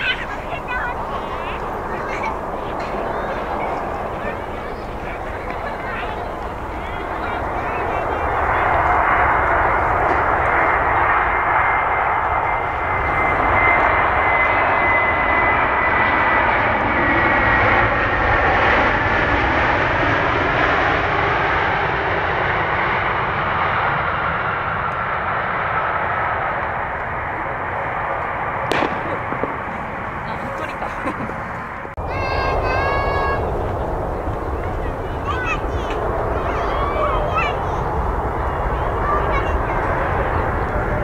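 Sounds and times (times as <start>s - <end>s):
jet engines rushing with high whine: 0.0s - 41.0s.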